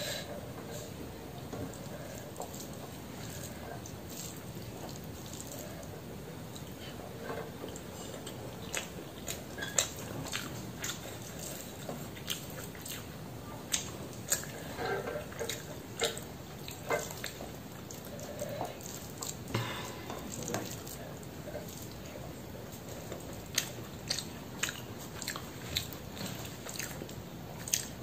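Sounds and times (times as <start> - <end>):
chewing: 0.6 - 28.0
fingers squishing wet food: 7.6 - 19.5, 20.2 - 28.0.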